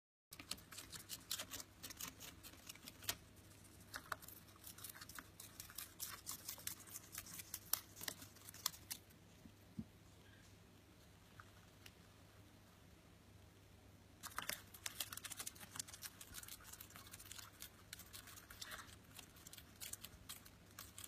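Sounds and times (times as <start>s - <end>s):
bird beak cutting paper: 0.3s - 9.0s
faint steady hum: 0.3s - 21.0s.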